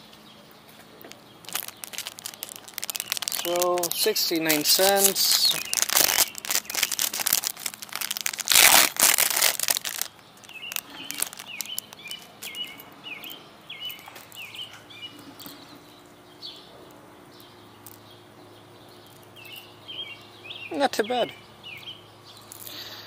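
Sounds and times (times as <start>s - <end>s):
bird chirping: 0.0s - 23.0s
plastic bag crinkling: 1.0s - 12.9s.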